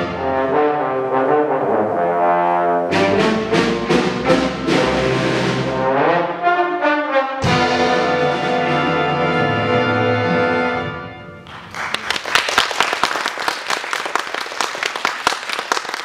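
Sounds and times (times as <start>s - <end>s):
big band held chord: 0.0s - 11.5s
audience applause: 11.4s - 16.0s.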